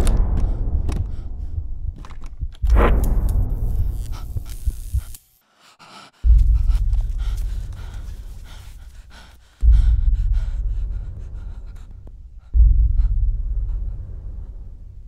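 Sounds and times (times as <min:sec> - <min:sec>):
deep booming hits: 0:00.0 - 0:04.5, 0:09.6 - 0:11.8, 0:12.5 - 0:15.0
person breathing hard and gasping: 0:04.1 - 0:15.0.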